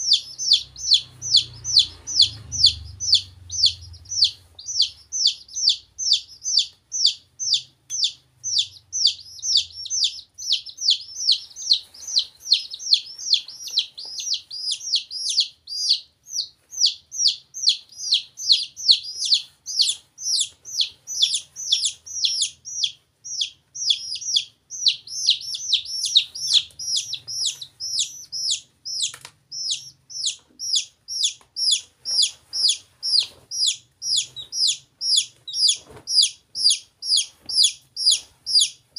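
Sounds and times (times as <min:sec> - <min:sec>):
chicks peeping: 0:00.0 - 0:38.9.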